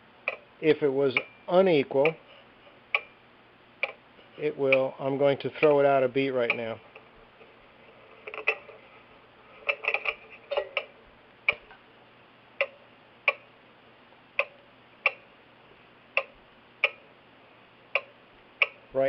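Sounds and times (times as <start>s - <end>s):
grandfather clock ticking: 1.1s - 2.3s, 2.9s - 3.2s, 3.8s - 7.4s, 9.6s - 11.7s, 12.6s - 13.5s, 14.3s - 15.4s, 16.1s - 17.1s, 17.9s - 18.9s.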